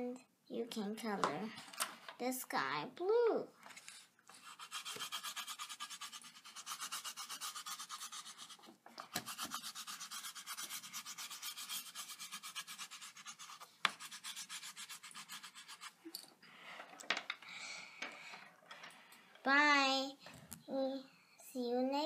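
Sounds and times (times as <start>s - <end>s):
crayon scribbling on paper: 4.3s - 16.0s.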